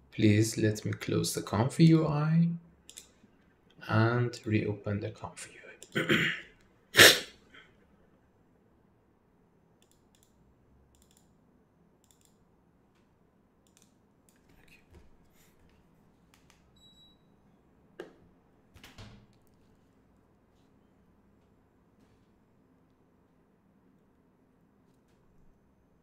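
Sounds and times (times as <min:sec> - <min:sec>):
computer mouse clicks: 0:02.9 - 0:03.2, 0:09.8 - 0:11.4, 0:12.0 - 0:12.4, 0:13.0 - 0:14.8.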